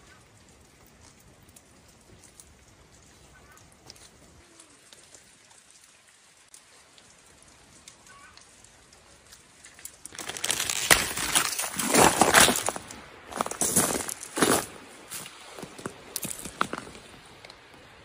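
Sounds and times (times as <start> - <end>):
quiet outdoor background: 0.0 - 18.0
loud crunching and rustling: 9.7 - 17.6.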